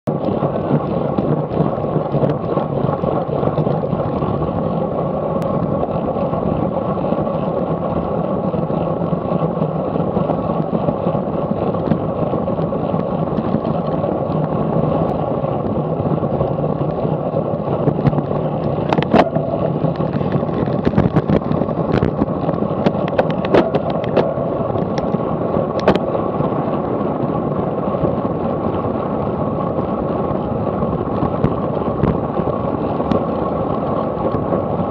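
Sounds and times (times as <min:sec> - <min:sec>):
tyre-on-road noise: 0:00.0 - 0:34.9
wind rushing: 0:13.2 - 0:28.4.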